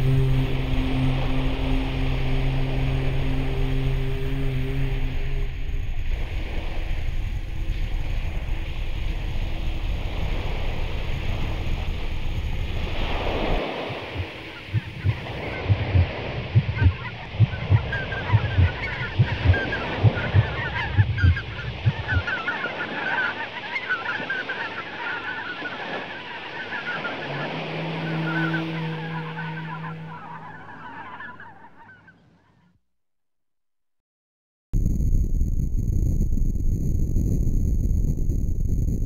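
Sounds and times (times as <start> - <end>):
surf rushing: 0.0 - 31.9
wind: 0.0 - 32.6
low thumps: 14.0 - 22.2, 34.8 - 39.0.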